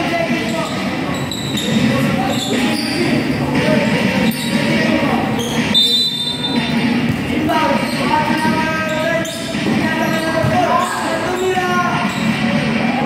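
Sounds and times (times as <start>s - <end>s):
high squeal: 0.4s - 3.5s, 4.2s - 6.7s
basketball bouncing on court: 8.3s - 10.9s.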